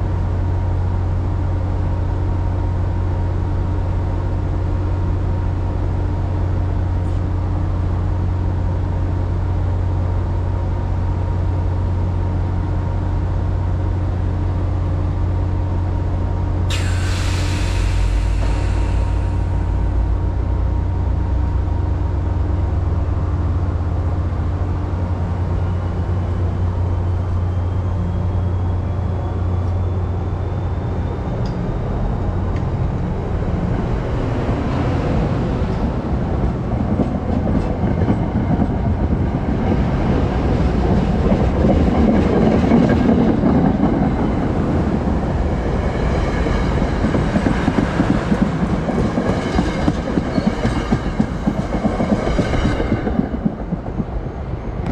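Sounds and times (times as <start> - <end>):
train low hum: 0.0 - 54.9
wheel and rail rumble: 0.0 - 54.9
clickety-clack over rail joints: 33.7 - 54.9.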